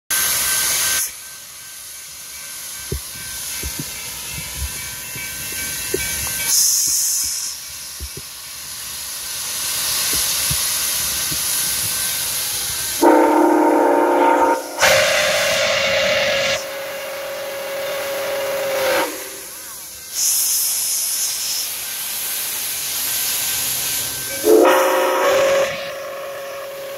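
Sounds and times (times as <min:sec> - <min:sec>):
steam hissing from locomotive: 0:00.1 - 0:26.9
steam whistle blasts: 0:12.5 - 0:21.6, 0:24.1 - 0:26.9.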